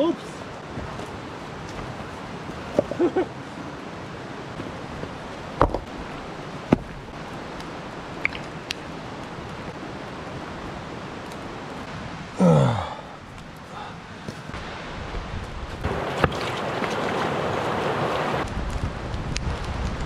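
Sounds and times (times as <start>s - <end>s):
flowing water: 0.0s - 18.5s
wooden log knocking on rocks: 2.7s - 3.1s, 5.0s - 5.9s, 6.7s - 7.0s.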